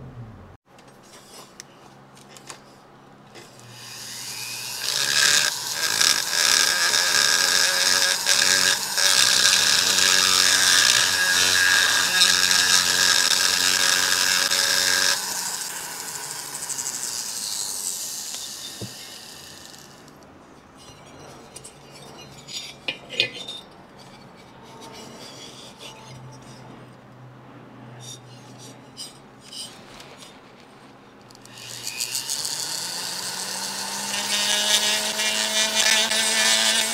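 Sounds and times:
die grinder grinding metal: 3.3 - 26.7, 31.3 - 36.9.

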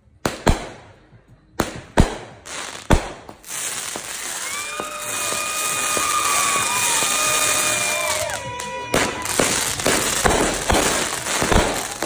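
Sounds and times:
firework fountain hissing: 2.5 - 12.0
firework whistling: 3.4 - 12.0.

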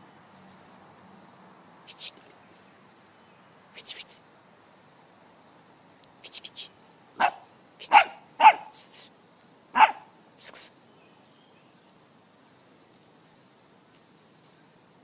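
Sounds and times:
puppy barking: 7.2 - 8.8, 9.7 - 10.1.

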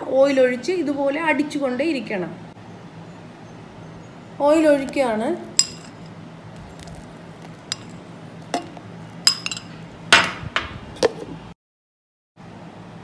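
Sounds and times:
metal spoon clinking on jar: 5.6 - 9.7.

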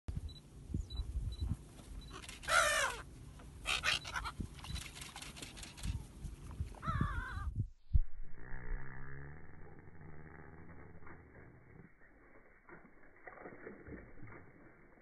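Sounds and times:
gulls calling: 2.1 - 5.1.

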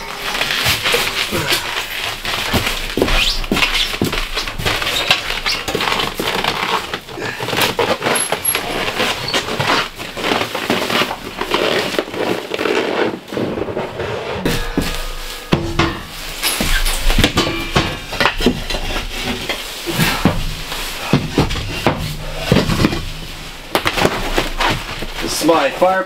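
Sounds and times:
metal stove knocks and scrapes: 14.4 - 25.2.

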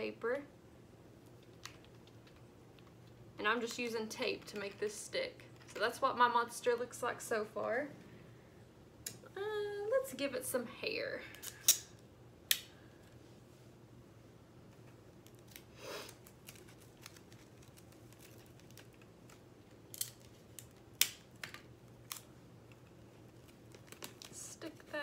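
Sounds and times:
craft materials rustling: 14.6 - 25.0.

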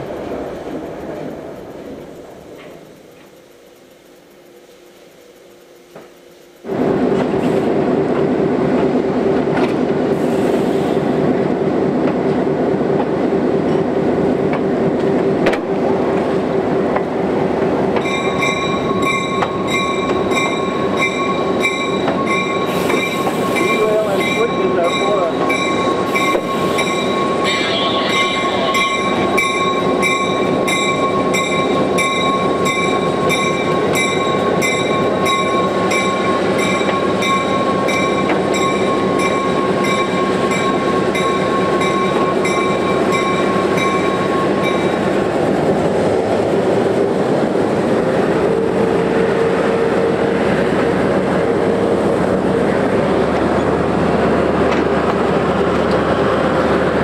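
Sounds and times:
diesel locomotive engine rumbling: 0.0 - 57.0
locomotive bell ringing: 18.0 - 45.2.

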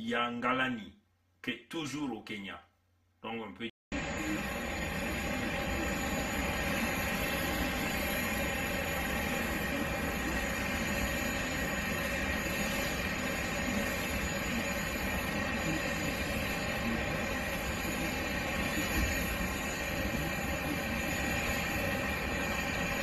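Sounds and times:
jet engines roaring and whining: 4.0 - 23.0.

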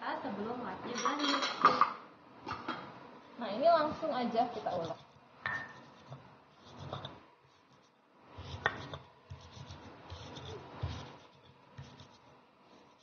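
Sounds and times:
stone pestle pounding in mortar: 4.8 - 7.1, 8.4 - 11.2.

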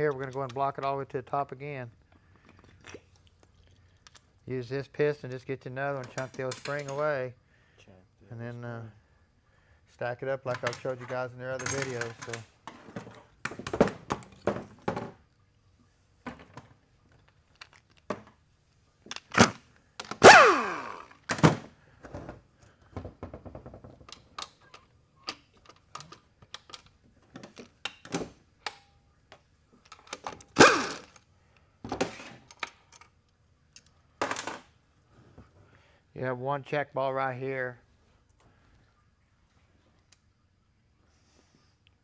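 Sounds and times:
metal tools clicking and knocking: 10.5 - 12.4.

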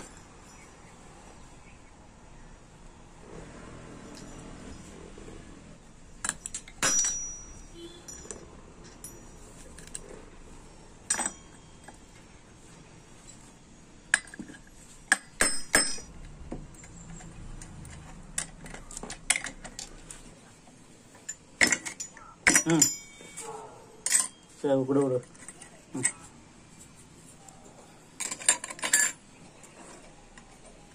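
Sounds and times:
metal parts clinking: 4.0 - 5.0, 6.1 - 10.2, 11.0 - 12.3, 13.2 - 20.3, 21.1 - 26.3, 28.2 - 30.5.

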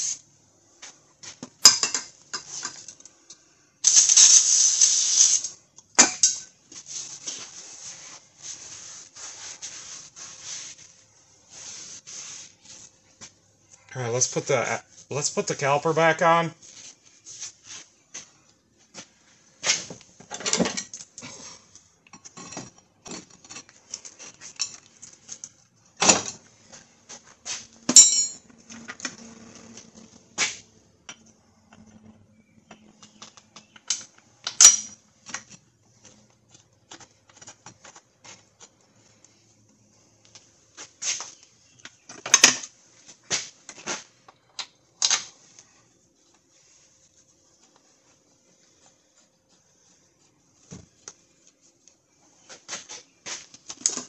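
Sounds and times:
metal clinks and knocks: 27.9 - 28.5.

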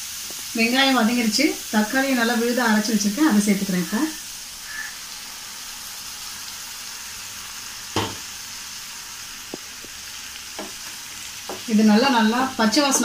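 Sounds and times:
onions sizzling in oil: 0.0 - 13.0
knock: 8.0 - 8.2.

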